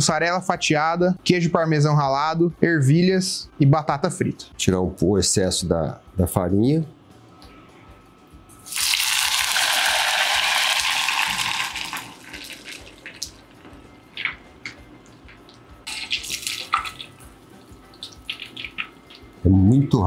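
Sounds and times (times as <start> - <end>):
steak sizzling in hot oil: 8.7 - 13.4
oil crackling and bubbling: 8.7 - 13.5, 14.1 - 19.4.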